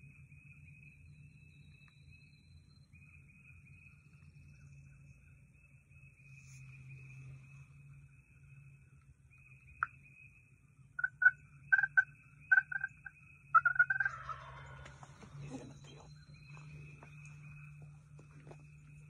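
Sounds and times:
turkey gobbling: 0:11.0 - 0:16.1.

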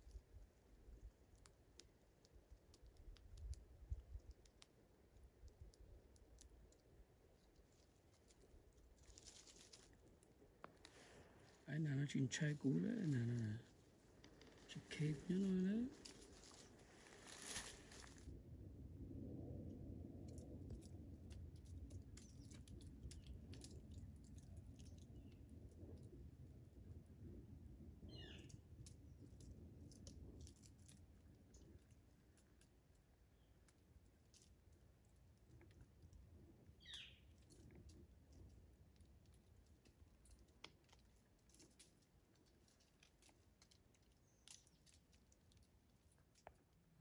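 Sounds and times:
squirrel gnawing clicks: 0:00.0 - 0:11.0
squirrel clicks and scratches: 0:00.0 - 0:11.6, 0:12.4 - 0:18.2, 0:20.2 - 0:47.0
soft low rumble: 0:00.0 - 0:47.0
low rumble: 0:09.9 - 0:30.4.

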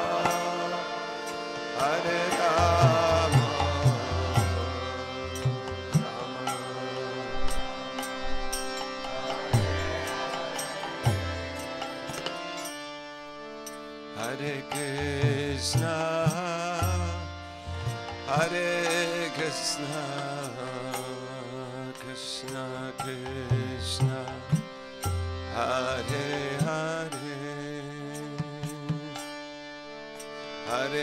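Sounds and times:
person singing: 0:00.0 - 0:08.3, 0:08.9 - 0:12.6
light percussion: 0:00.0 - 0:31.0
steady drone: 0:00.0 - 0:31.0.

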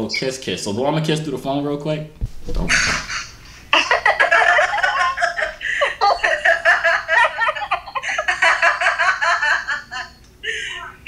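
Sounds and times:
woman laughing: 0:02.7 - 0:11.0.

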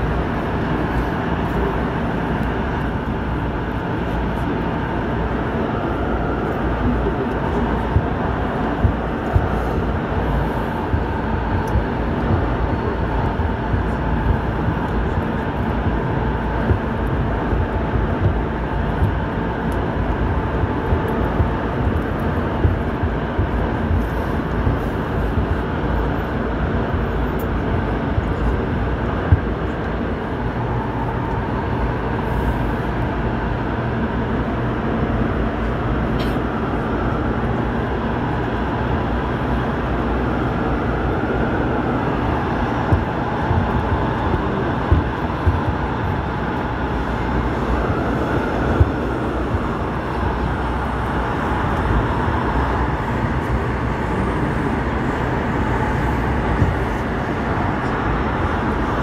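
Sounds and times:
faint traction motor whine: 0:00.0 - 0:59.0
train wheels rumbling on rail: 0:00.0 - 0:59.0.

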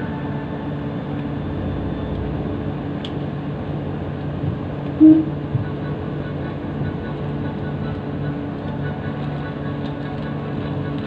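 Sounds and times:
ferry engine droning: 0:00.0 - 0:11.0
short loud tone: 0:05.0 - 0:05.4.

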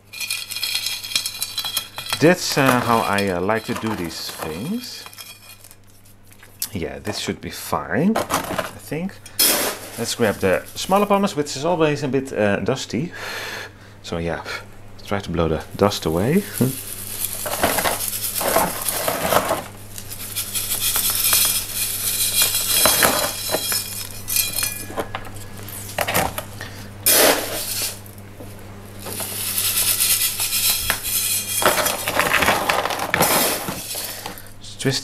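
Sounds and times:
metal scoop scraping stones: 0:00.0 - 0:05.8, 0:08.2 - 0:11.4, 0:16.2 - 0:28.1, 0:29.0 - 0:34.5
pumice gravel rattling: 0:00.0 - 0:06.1, 0:09.4 - 0:11.4, 0:15.9 - 0:34.5.

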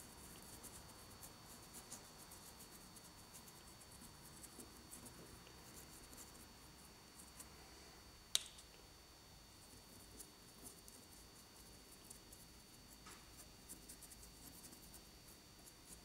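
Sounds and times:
paintbrush scratching: 0:00.0 - 0:06.6, 0:09.6 - 0:16.0
sharp click: 0:08.3 - 0:08.7.

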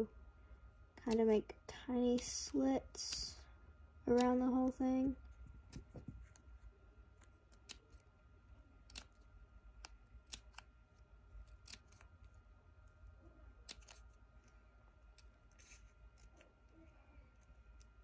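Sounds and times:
scissors snipping paper: 0:01.0 - 0:01.4, 0:02.0 - 0:03.4, 0:04.1 - 0:06.4, 0:07.2 - 0:08.1, 0:08.8 - 0:10.7, 0:11.4 - 0:12.4, 0:13.6 - 0:14.2, 0:15.1 - 0:18.0.

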